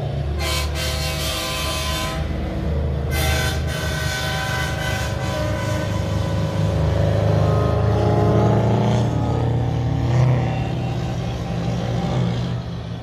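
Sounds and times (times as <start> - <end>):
diesel trucks passing: 0.0 - 13.0
air horn: 0.4 - 2.3, 3.1 - 6.9.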